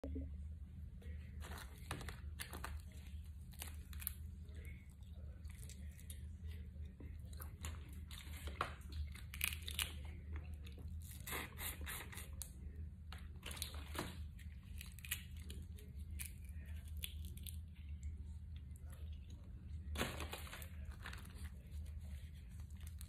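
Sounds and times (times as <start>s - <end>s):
steady low hum: 0.0s - 23.0s
sucking and chewing: 1.4s - 23.0s
shells snapping and tearing: 7.5s - 10.2s, 13.4s - 17.7s.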